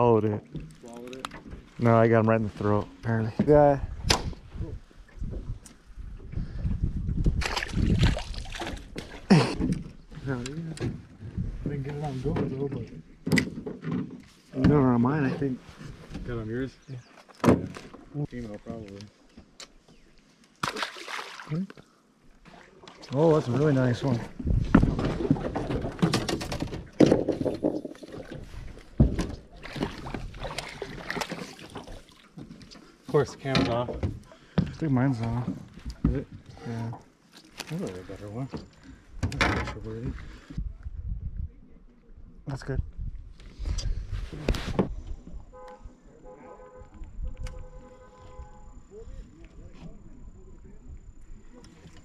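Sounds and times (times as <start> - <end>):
gusty wind on microphone: 3.8 - 8.4, 24.3 - 25.4, 40.5 - 41.6
handling knocks and thumps: 24.4 - 30.2.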